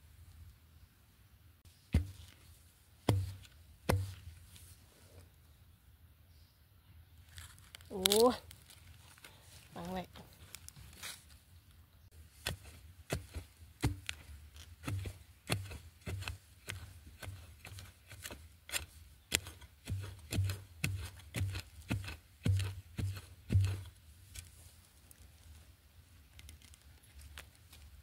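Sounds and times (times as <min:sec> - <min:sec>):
blade chopping into earth: 0:03.1 - 0:04.2, 0:12.4 - 0:23.9.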